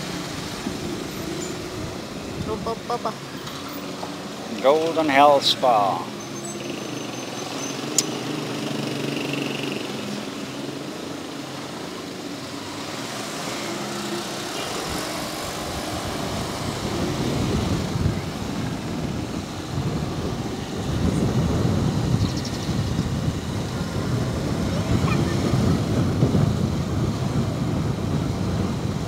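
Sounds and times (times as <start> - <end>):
wind rumble on microphone: 0.0 - 4.6, 14.6 - 29.0
motorcycle engine running: 6.6 - 29.0.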